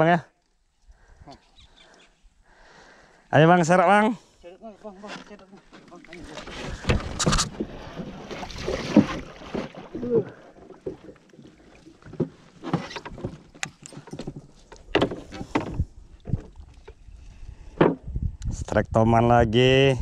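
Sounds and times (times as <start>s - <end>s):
water splashing: 5.9s - 13.6s.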